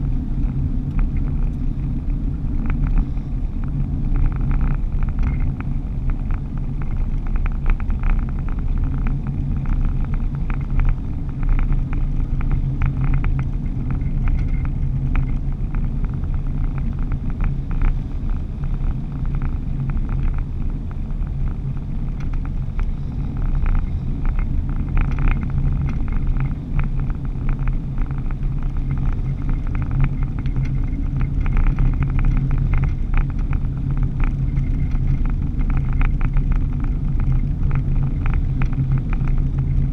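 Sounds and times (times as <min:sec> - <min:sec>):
vehicle engine and road drone: 0:00.0 - 0:39.9
light clicks and rattles: 0:00.4 - 0:39.9.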